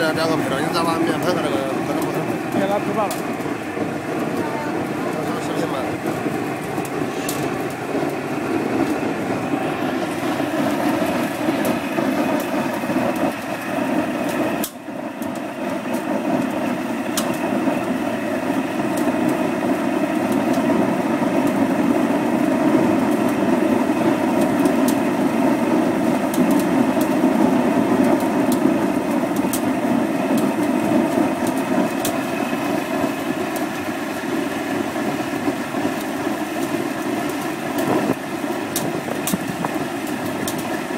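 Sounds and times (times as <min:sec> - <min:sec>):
faint crackles: 0:00.0 - 0:17.8
burner roaring: 0:00.0 - 0:40.9.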